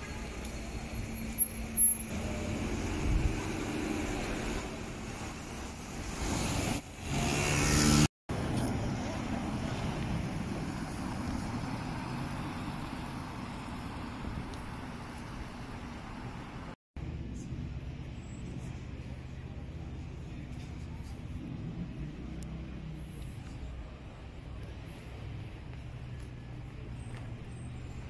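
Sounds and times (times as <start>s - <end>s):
traffic on a wet street: 0.0s - 28.0s.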